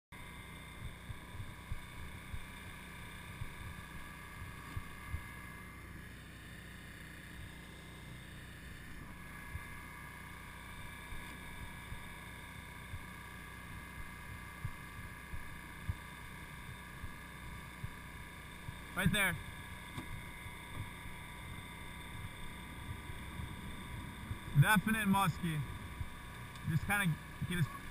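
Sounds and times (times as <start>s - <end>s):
boat mechanical hum: 0.1s - 27.9s
low thumps on microphone: 19.9s - 24.6s, 25.6s - 26.7s.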